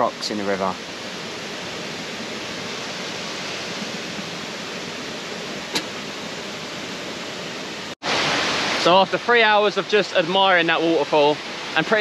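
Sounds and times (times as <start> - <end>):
water rushing over rocks: 8.0 - 12.0.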